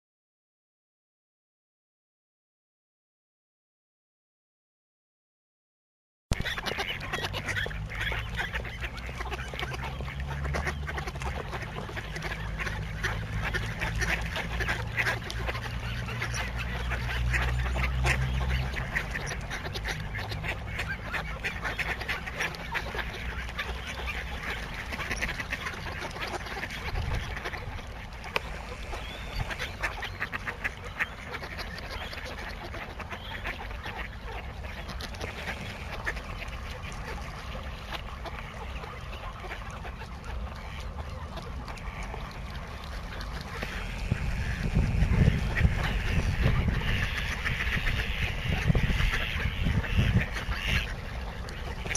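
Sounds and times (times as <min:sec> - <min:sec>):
ducks quacking: 0:06.3 - 0:51.9
low rumble: 0:43.4 - 0:47.3.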